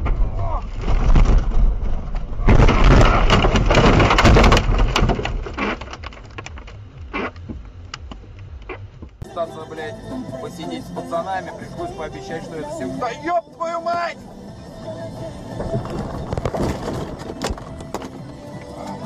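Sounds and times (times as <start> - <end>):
car crashing into snow and trees: 0.0 - 6.4, 15.5 - 18.0
crunching scraping and banging: 0.0 - 9.2, 15.5 - 19.0
scattered knocks: 2.5 - 8.2.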